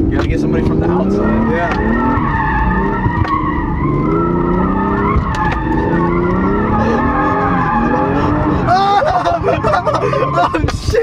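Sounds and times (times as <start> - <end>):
car engine running: 0.0 - 11.0
car tires squealing: 0.0 - 11.0.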